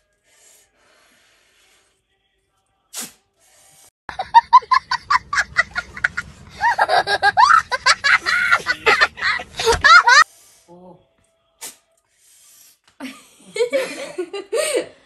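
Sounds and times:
young child laughing: 4.2 - 10.2.

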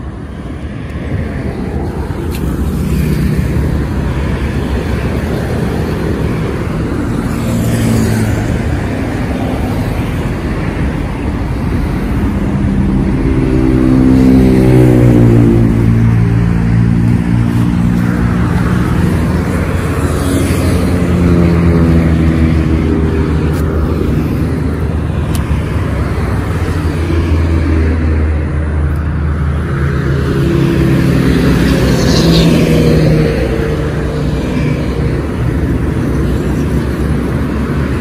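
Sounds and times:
highway traffic: 0.0 - 38.0.

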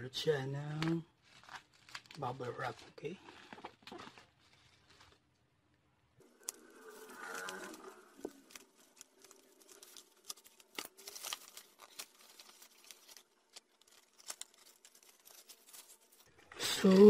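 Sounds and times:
bubble wrap crinkling: 0.7 - 5.6, 6.2 - 17.0.

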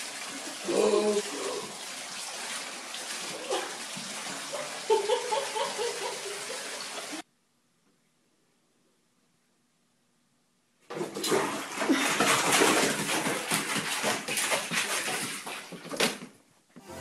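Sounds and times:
water pouring into bathtub: 0.0 - 7.2, 10.9 - 16.2.

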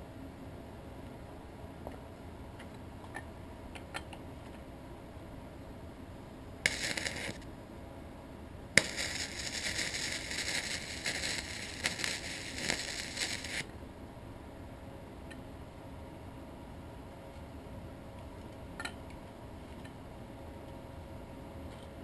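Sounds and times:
welding arc striking crack: 6.6 - 7.4, 8.8 - 13.7
welding arc crackling: 6.6 - 7.5, 8.8 - 13.7.

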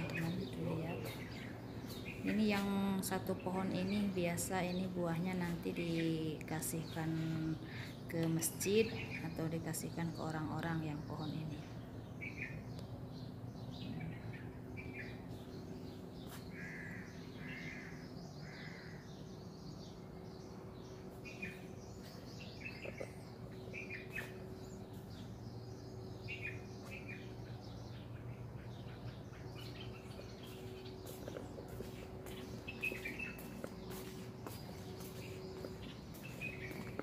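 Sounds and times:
birds chirping: 0.0 - 37.0
steady low hum: 0.0 - 37.0
harsh bird calls: 12.2 - 37.0.

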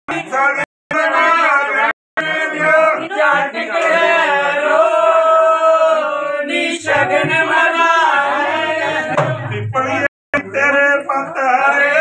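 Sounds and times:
people singing folk song: 0.1 - 12.0.

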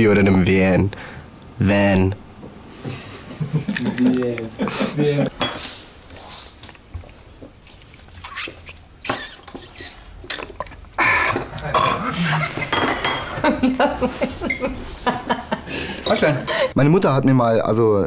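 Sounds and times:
china cups and spoons clinking: 12.6 - 13.4.

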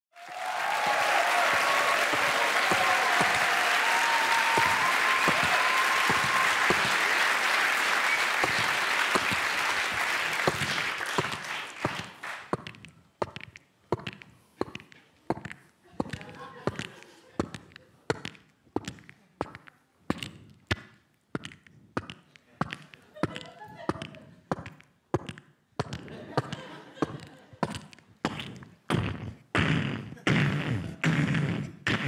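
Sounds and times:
studio audience applauding: 0.1 - 12.5.

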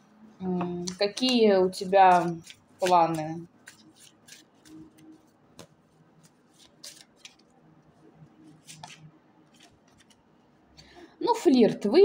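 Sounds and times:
cards shuffling: 0.8 - 7.6, 8.4 - 10.3.

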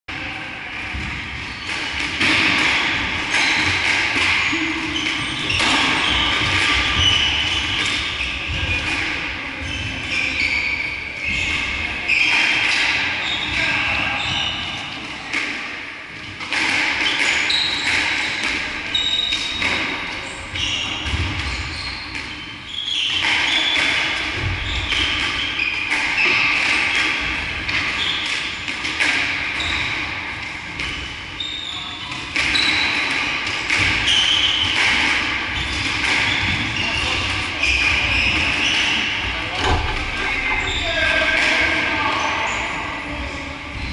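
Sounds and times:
squash ball hitting racket and walls: 0.1 - 43.9
shoes squeaking on floorboards: 3.3 - 8.9, 9.6 - 12.6, 17.0 - 24.0, 30.8 - 33.1, 33.8 - 34.8, 35.5 - 41.3.

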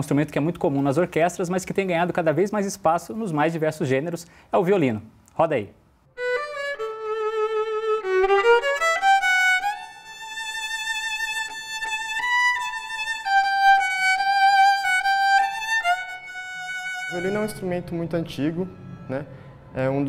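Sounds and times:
solo violin melody: 6.2 - 20.0.

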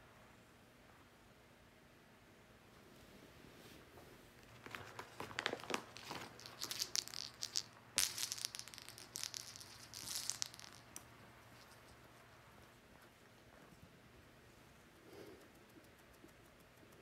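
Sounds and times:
cat batting at toys rustling: 4.4 - 12.2.

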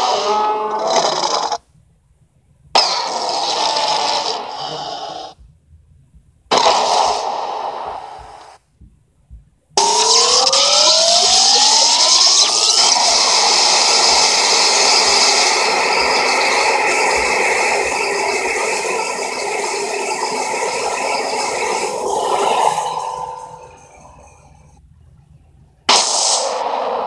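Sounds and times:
monster roar: 0.0 - 1.6, 2.8 - 5.4, 10.9 - 24.4.

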